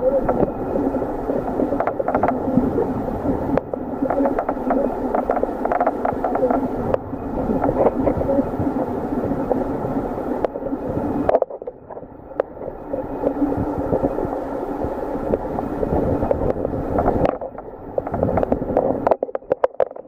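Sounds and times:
muffled underwater rush: 0.0s - 20.0s
small clicks and knocks: 1.7s - 2.4s, 3.6s - 7.0s, 11.2s - 12.6s, 16.3s - 20.0s.

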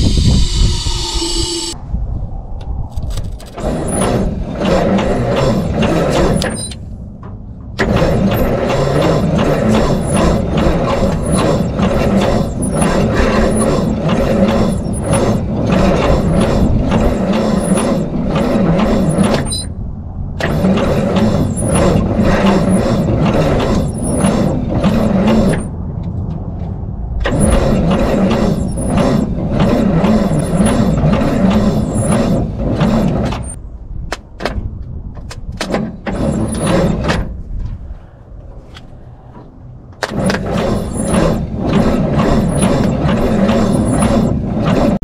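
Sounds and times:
engine cranking over by starter: 3.0s - 19.7s, 20.3s - 25.8s, 27.2s - 33.6s, 38.7s - 45.0s.

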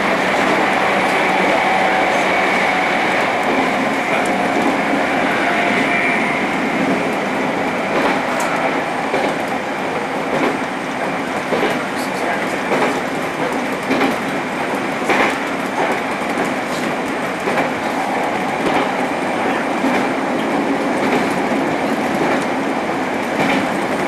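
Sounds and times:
train wheels rumbling on rails: 0.0s - 24.0s
wheels clacking over rail joints: 10.3s - 19.0s, 19.8s - 24.0s.

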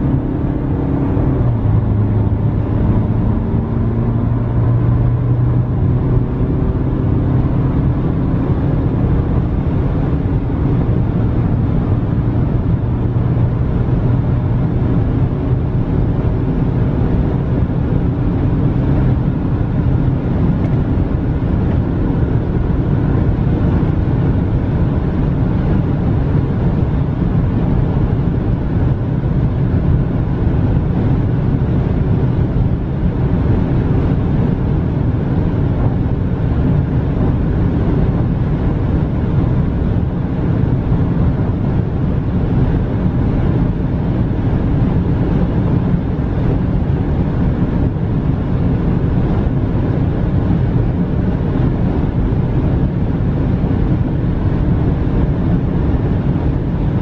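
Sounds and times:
car engine droning: 0.0s - 57.0s
road noise: 0.0s - 57.0s.

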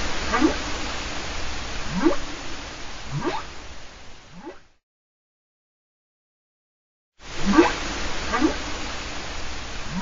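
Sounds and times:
steady hiss: 0.0s - 4.8s, 7.2s - 10.0s
whale calls: 0.2s - 0.8s, 1.8s - 2.3s, 3.1s - 3.5s, 7.4s - 8.8s.

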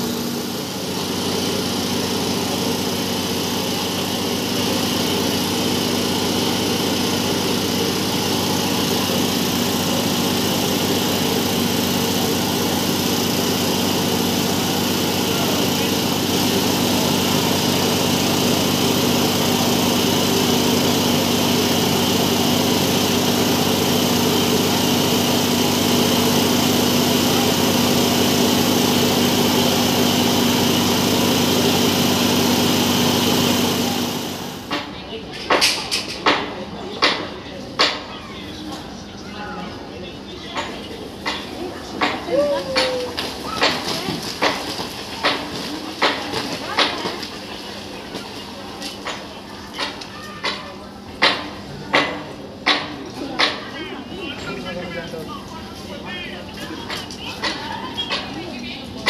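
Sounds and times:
burner hissing: 0.0s - 34.7s
small engine droning: 0.0s - 34.7s.

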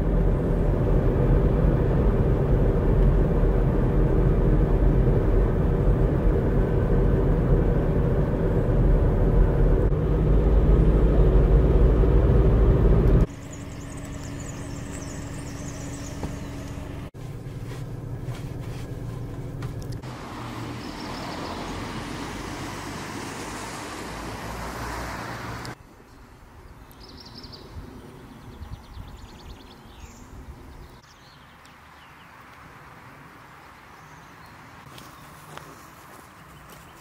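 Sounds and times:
car passing on road: 0.0s - 25.8s.

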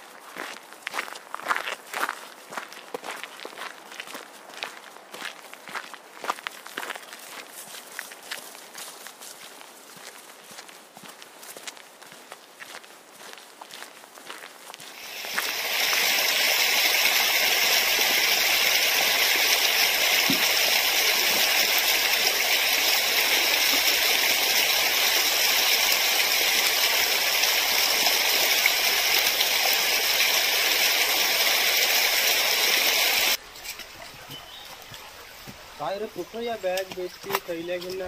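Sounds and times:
small waterfall splashing: 14.9s - 33.4s.

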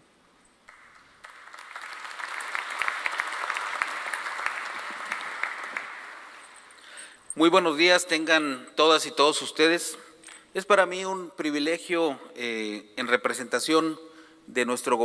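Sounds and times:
audience applauding: 0.7s - 6.9s.

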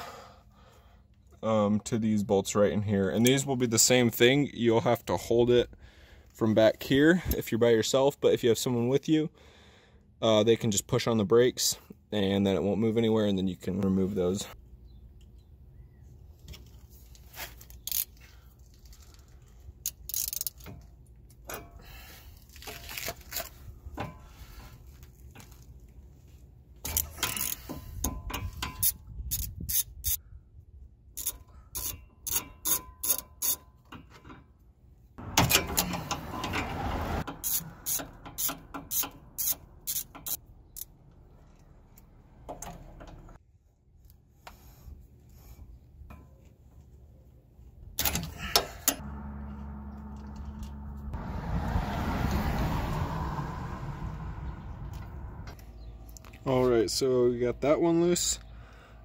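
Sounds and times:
hand ratchet clicking: 19.8s - 20.6s, 26.9s - 27.7s, 31.2s - 33.6s, 37.4s - 40.9s
metal scraping: 48.3s - 51.4s.

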